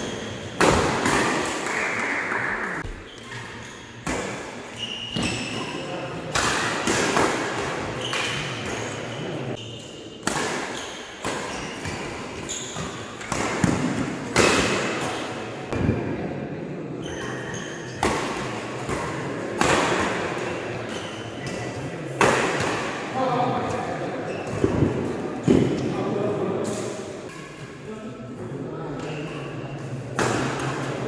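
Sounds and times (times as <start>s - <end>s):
racket smacking shuttlecock: 0.6s - 2.4s, 10.2s - 15.3s
shoes squeaking on court: 4.7s - 5.8s, 8.0s - 13.3s.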